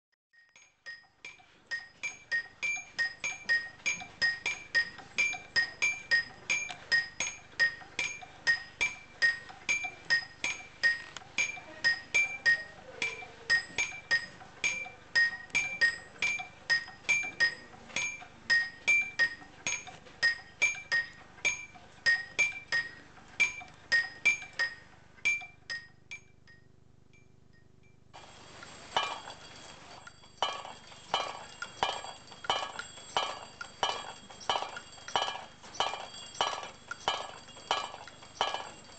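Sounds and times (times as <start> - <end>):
wooden hammers striking metal bars: 0.4 - 38.9
small bell jingling: 28.2 - 38.9.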